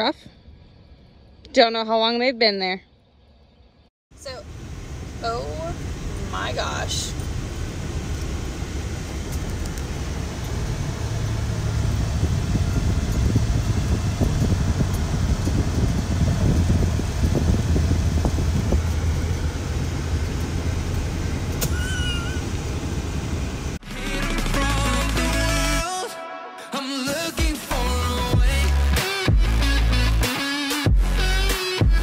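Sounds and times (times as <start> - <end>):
car cabin road noise: 4.2 - 23.8
high wavering squeak: 21.6 - 22.5.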